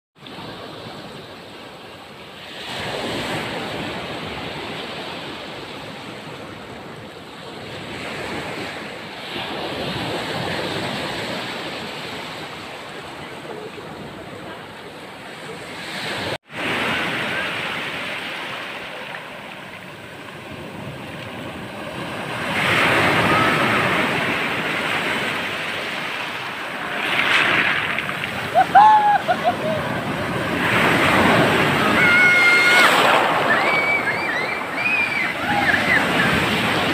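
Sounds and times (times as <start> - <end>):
waves breaking on pebble beach: 15.5 - 36.9.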